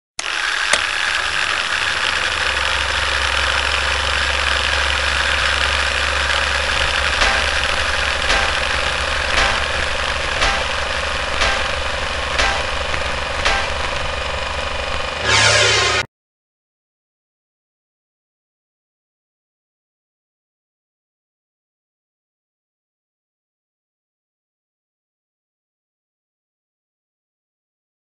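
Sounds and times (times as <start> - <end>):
sharp clicks: 0.2 - 15.2
film projector whirring: 0.2 - 16.1.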